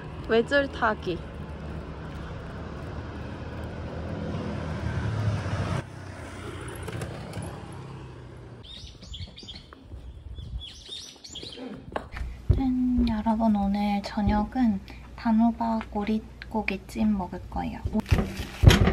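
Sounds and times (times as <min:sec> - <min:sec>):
small birds chirping: 0:08.6 - 0:11.8.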